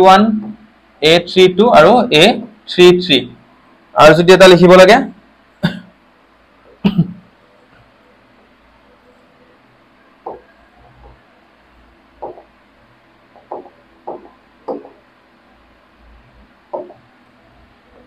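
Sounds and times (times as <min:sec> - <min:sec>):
marker tapping on whiteboard: 0:00.4 - 0:00.6, 0:10.2 - 0:11.2, 0:12.2 - 0:12.5, 0:13.3 - 0:15.0, 0:16.7 - 0:17.1.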